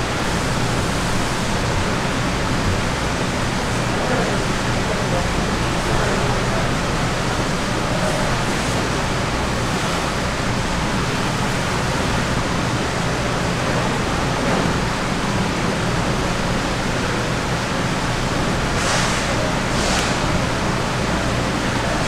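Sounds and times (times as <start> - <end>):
brief bright hiss: 18.8 - 20.4.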